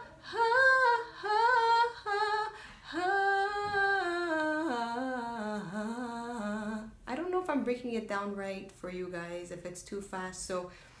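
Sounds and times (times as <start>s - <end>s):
woman singing unaccompanied: 0.0s - 7.2s.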